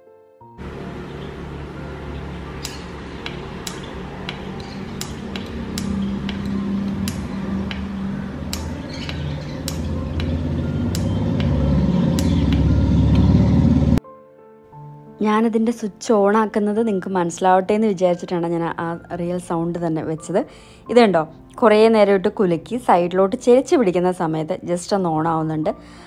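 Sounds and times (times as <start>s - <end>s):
low hum: 0.6s - 14.0s.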